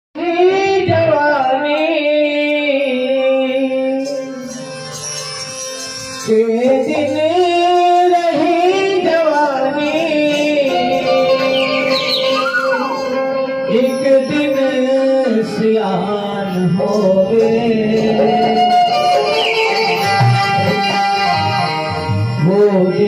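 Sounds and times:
devotional song on harmonium and keyboard: 0.1 - 23.0.

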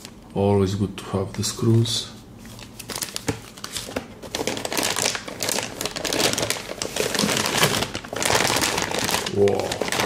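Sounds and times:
plastic packaging crinkling: 2.5 - 10.0.

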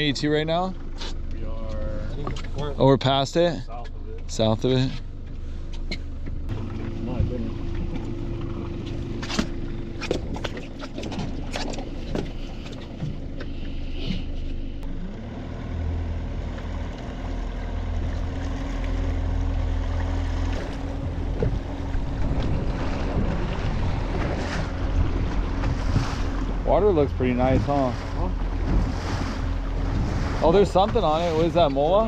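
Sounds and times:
low rumble: 0.0 - 32.0
outboard motor running: 0.0 - 32.0.

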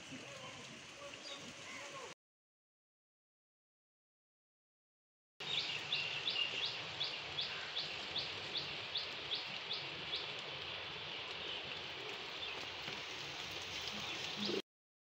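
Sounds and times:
rain hiss: 0.0 - 2.2, 5.4 - 14.6
bird chirping: 5.4 - 10.4, 13.8 - 14.6.

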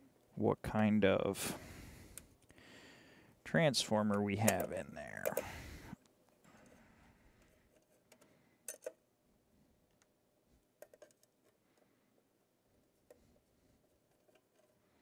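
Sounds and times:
screwdriver clicks on metal screws: 4.1 - 5.5.

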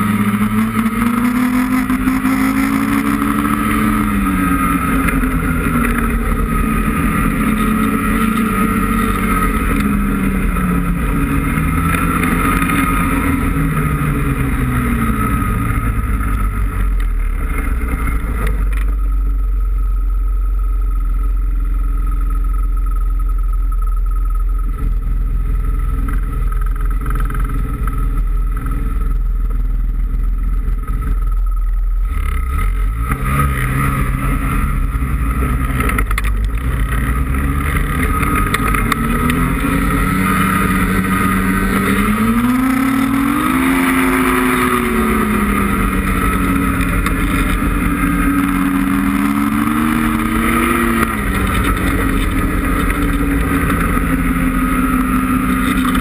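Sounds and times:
snowmobile engine revving: 0.0 - 18.9, 32.0 - 56.0.

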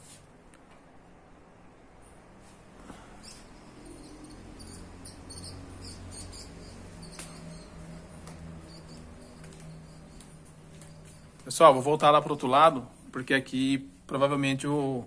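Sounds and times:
high-pitched animal chirps: 3.2 - 7.8.

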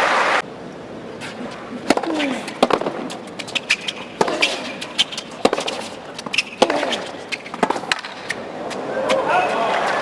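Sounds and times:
tennis ball hit by racquets: 1.3 - 9.2.

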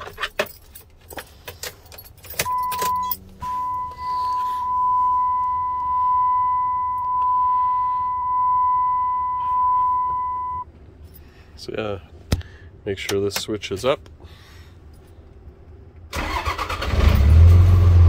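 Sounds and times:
keys jangling: 0.0 - 3.3
high-pitched electronic warning tone: 2.5 - 10.6.

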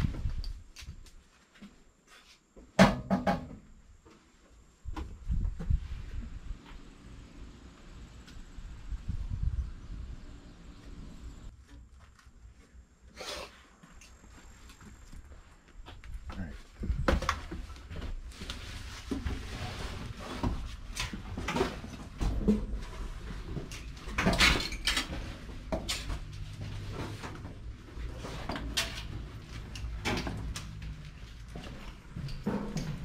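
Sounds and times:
footsteps: 25.1 - 33.0
metal knocks and clunks: 32.1 - 33.0.

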